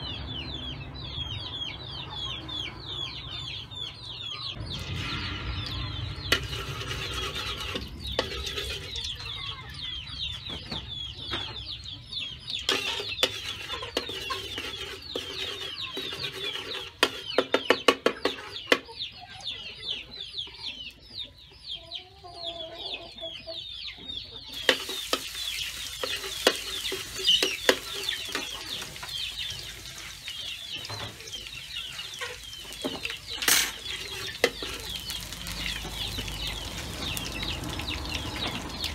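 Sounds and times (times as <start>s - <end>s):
chickens clucking and cheeping: 0.0s - 38.9s
metal spatula clattering on wok: 6.3s - 9.1s, 12.7s - 18.8s, 24.6s - 28.9s, 32.8s - 35.2s
garlic sizzling in oil: 6.3s - 9.2s, 12.7s - 17.6s, 24.5s - 38.9s.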